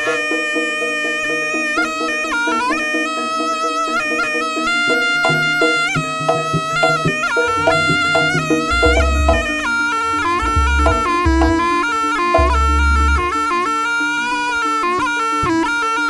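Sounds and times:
shawm playing nasal melody: 0:00.0 - 0:16.0
drums and percussion: 0:04.2 - 0:13.6
deep drum or gong beats: 0:05.2 - 0:13.5.

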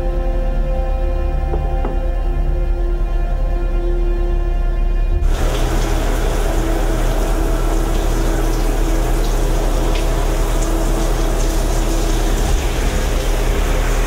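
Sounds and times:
shower spray running: 0:05.2 - 0:14.0.

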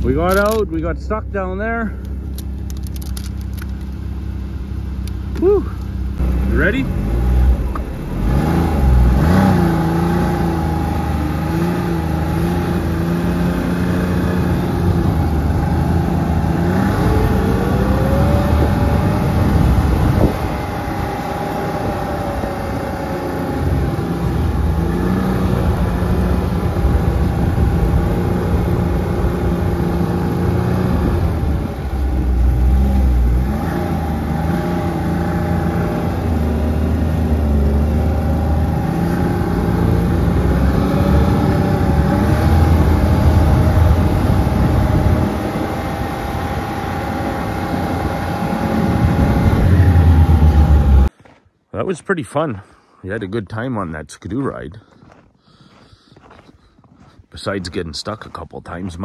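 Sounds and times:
snowmobile engine running: 0:05.4 - 0:51.1.

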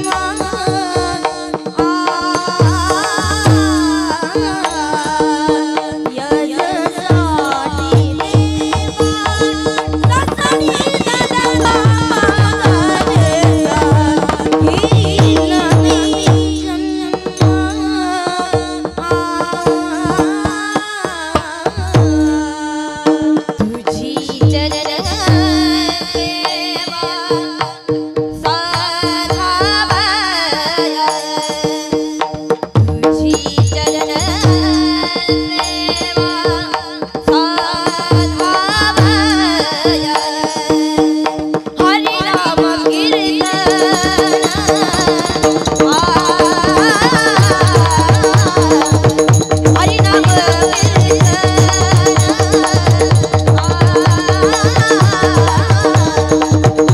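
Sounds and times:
drum strokes: 0:00.0 - 0:30.7, 0:32.3 - 0:56.9
woman singing: 0:00.0 - 0:56.9
hand cymbals beating: 0:43.4 - 0:56.9.

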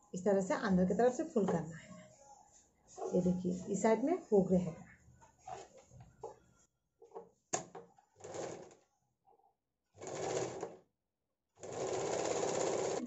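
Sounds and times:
fabric handling: 0:05.0 - 0:07.2
sewing machine stitching: 0:08.2 - 0:08.8, 0:10.0 - 0:10.8, 0:11.6 - 0:13.0.

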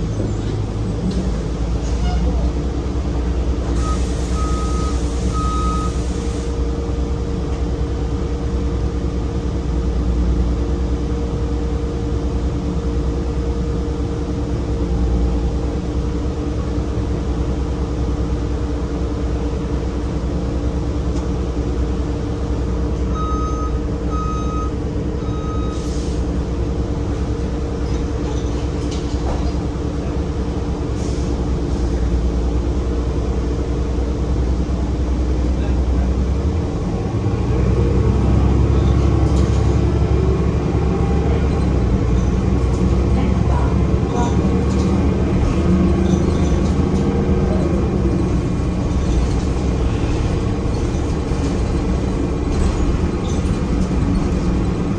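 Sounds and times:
bus engine droning: 0:00.0 - 0:54.9.

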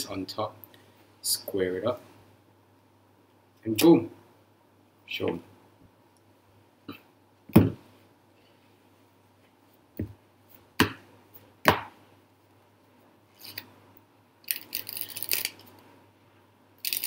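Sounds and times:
cards riffling: 0:14.5 - 0:15.7.

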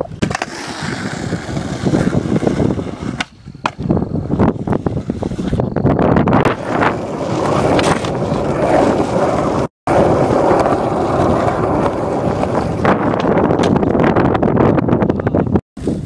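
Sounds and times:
skateboard wheels rolling on asphalt: 0:00.0 - 0:16.0.

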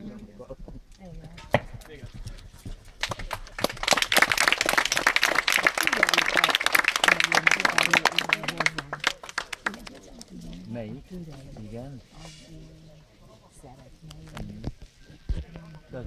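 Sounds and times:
spectators applauding: 0:03.0 - 0:10.2.

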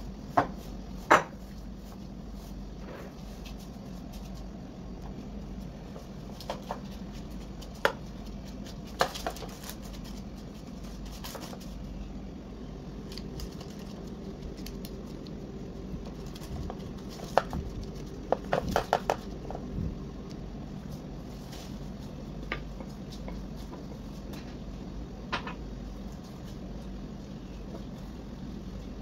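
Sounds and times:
steady low hum: 0:00.0 - 0:29.0
paper crinkling: 0:06.3 - 0:12.0, 0:13.0 - 0:19.5.

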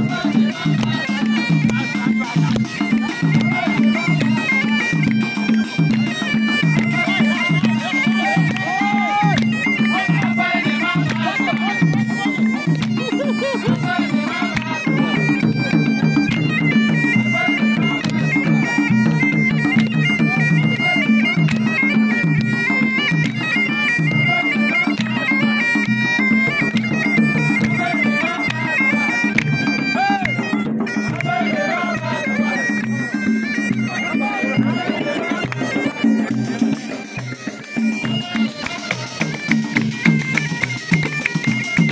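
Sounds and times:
frame drums beating: 0:00.0 - 0:41.9
reedy wind instrument melody: 0:00.0 - 0:41.9.

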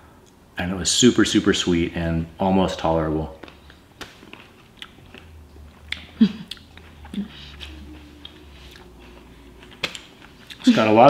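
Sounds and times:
person chewing with mouth open: 0:03.4 - 0:10.7.

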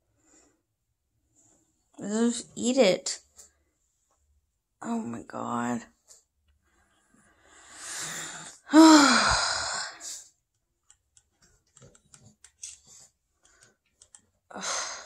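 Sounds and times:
person sighing groan: 0:08.7 - 0:09.8
faint clicks: 0:10.4 - 0:14.3.

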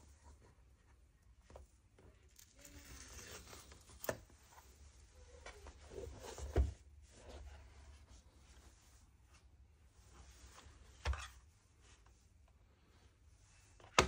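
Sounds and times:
packaging rustling and scraping: 0:02.3 - 0:04.3.

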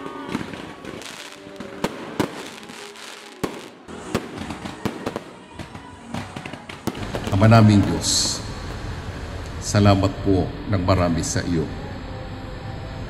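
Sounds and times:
fireworks crackling hiss: 0:00.0 - 0:05.4, 0:06.6 - 0:09.6
fireworks bangs and pops: 0:00.0 - 0:08.4.

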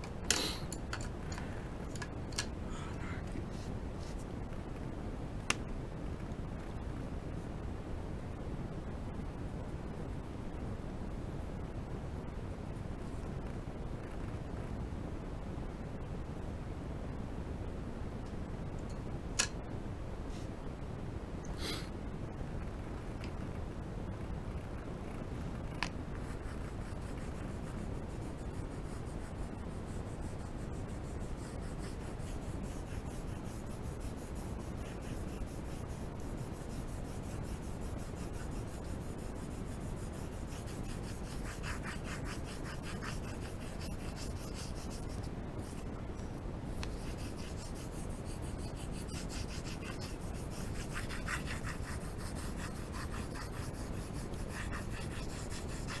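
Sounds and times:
low background rumble: 0:00.0 - 0:56.0
pencil scratching on paper: 0:26.1 - 0:45.9, 0:46.8 - 0:56.0.

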